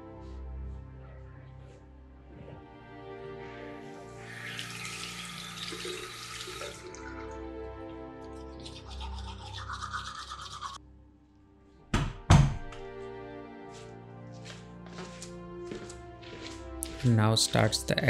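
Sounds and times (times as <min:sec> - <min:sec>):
soft background music: 0:00.0 - 0:18.0
toothbrush scrubbing teeth: 0:08.2 - 0:10.8, 0:16.3 - 0:18.0.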